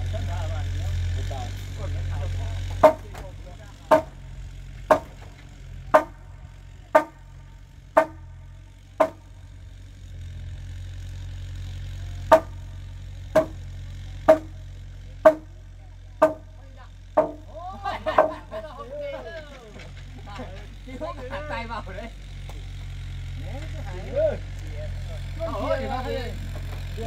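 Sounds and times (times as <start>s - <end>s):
hammer blows on timber: 2.8s - 9.5s, 12.2s - 15.6s, 16.2s - 16.6s, 17.2s - 18.5s.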